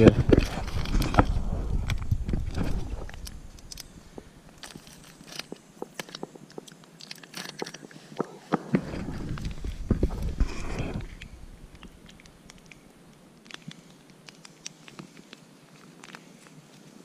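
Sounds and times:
low rumble: 0:00.0 - 0:04.7, 0:08.8 - 0:13.2.

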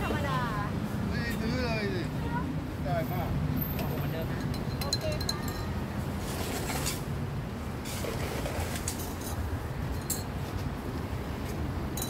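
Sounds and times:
market bustle: 0:00.0 - 0:12.0
street traffic rumble: 0:00.0 - 0:12.0
metallic clinks of glasses: 0:04.4 - 0:05.8, 0:09.2 - 0:10.3.

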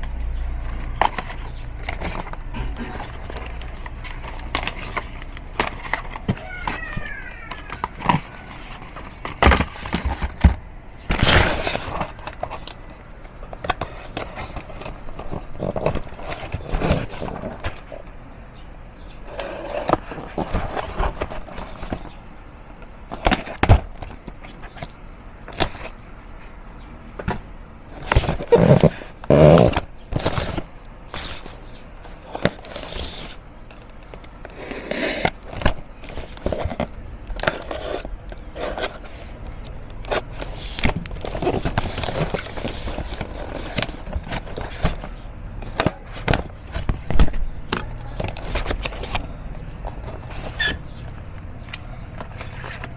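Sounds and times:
cardboard rustling: 0:00.0 - 0:18.2, 0:19.3 - 0:22.2, 0:23.0 - 0:52.9
knife scraping cardboard carton: 0:11.1 - 0:12.4, 0:28.0 - 0:31.5, 0:34.5 - 0:35.4.

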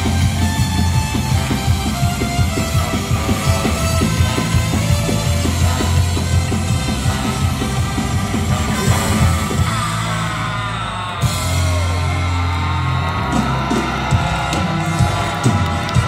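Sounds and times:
trumpet and trombone melody: 0:00.0 - 0:10.3
bass: 0:00.0 - 0:16.0
guitar: 0:00.0 - 0:16.0
live band playing over pa: 0:00.0 - 0:16.0
voices shouting: 0:00.0 - 0:16.0.

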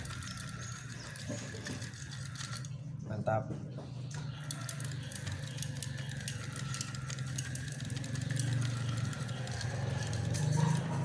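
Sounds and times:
fishing reel whirring and ticking: 0:00.0 - 0:02.7, 0:04.2 - 0:11.0.

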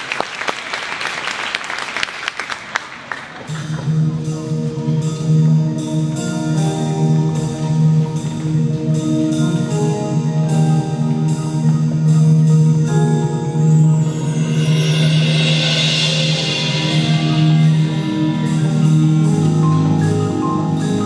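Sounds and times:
ringing mallet percussion notes: 0:03.9 - 0:21.0
sustained low note: 0:11.8 - 0:21.0.

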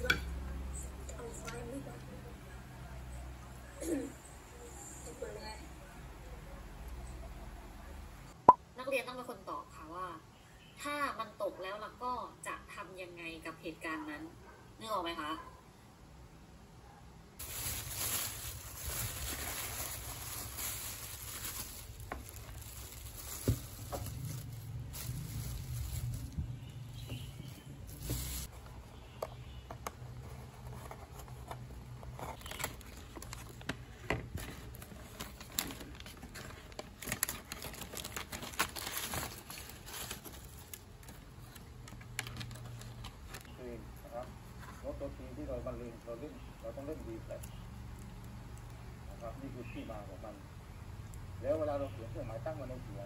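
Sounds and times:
paper wrapper crinkling: 0:17.4 - 0:28.6, 0:30.2 - 0:43.6.

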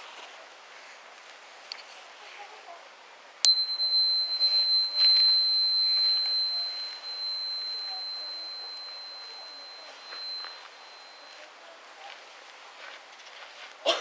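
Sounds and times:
tuning fork ringing: 0:03.5 - 0:11.5.

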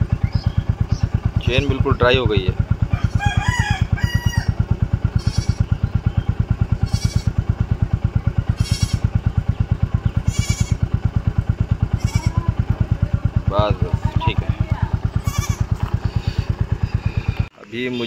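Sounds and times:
motorcycle engine idling: 0:00.0 - 0:18.0
rooster crowing: 0:02.8 - 0:05.6.

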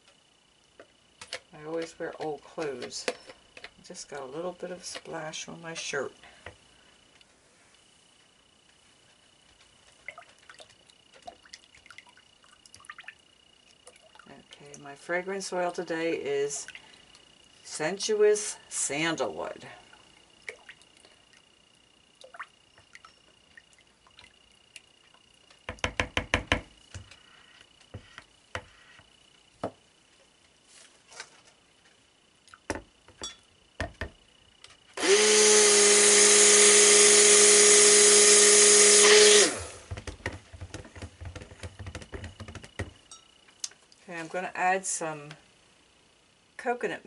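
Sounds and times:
stick blender running: 0:35.0 - 0:40.4.

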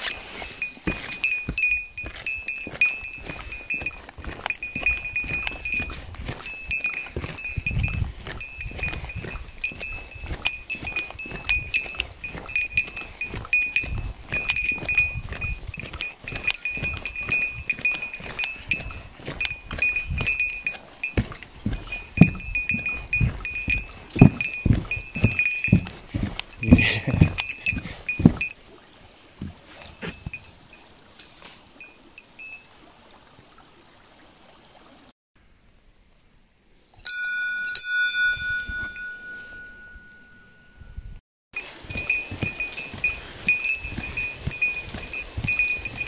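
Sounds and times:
footsteps on wooden boardwalk: 0:00.0 - 0:28.6, 0:29.4 - 0:32.3, 0:41.6 - 0:46.0
small bell jingling: 0:00.0 - 0:28.6, 0:29.8 - 0:30.8, 0:37.1 - 0:46.0.

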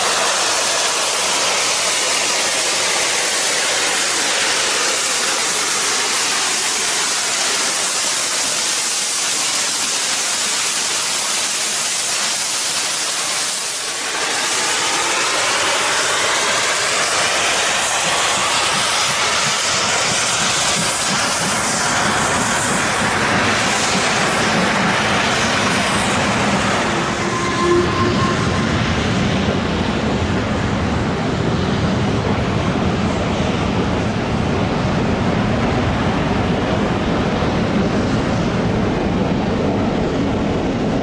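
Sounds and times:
steam locomotive hissing: 0:00.0 - 0:30.3
train rumble and coach clatter: 0:00.0 - 0:41.0.

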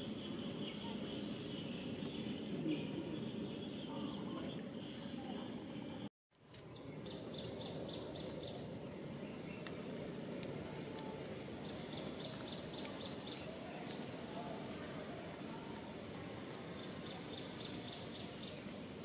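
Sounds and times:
low outdoor background noise: 0:00.0 - 0:19.0.

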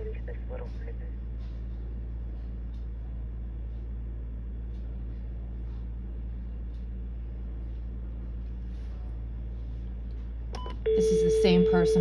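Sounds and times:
phone line hum: 0:10.6 - 0:12.0.

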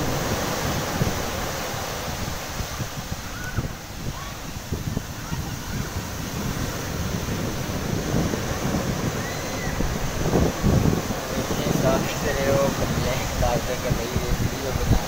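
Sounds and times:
surf washing onto beach: 0:00.0 - 0:15.0
wind buffeting microphone: 0:00.0 - 0:15.0.

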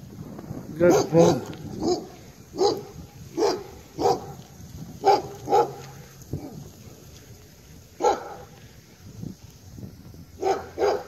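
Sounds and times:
dog barking: 0:00.8 - 0:04.4, 0:05.0 - 0:06.6, 0:08.0 - 0:08.6, 0:10.4 - 0:11.0.

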